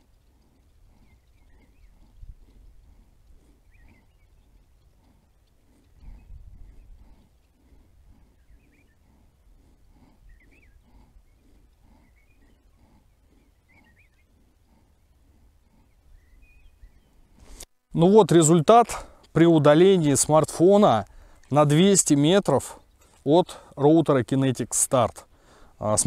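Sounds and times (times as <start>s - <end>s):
distant animal calling: 0.0s - 17.3s
bird chirps: 0.6s - 7.6s, 8.2s - 9.2s, 10.2s - 15.2s, 15.8s - 17.6s.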